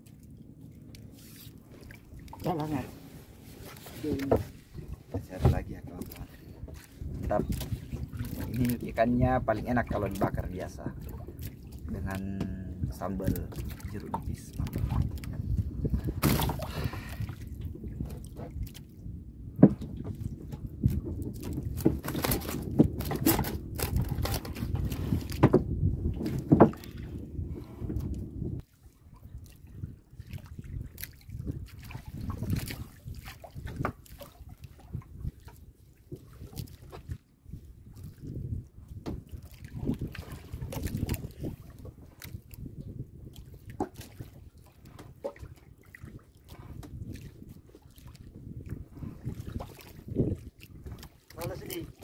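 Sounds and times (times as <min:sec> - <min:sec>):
water against boat hull: 0:00.0 - 0:52.0
wind rumbling on microphone: 0:01.5 - 0:52.0
fishing tackle knocks and scrapes: 0:03.2 - 0:08.7, 0:20.9 - 0:27.0.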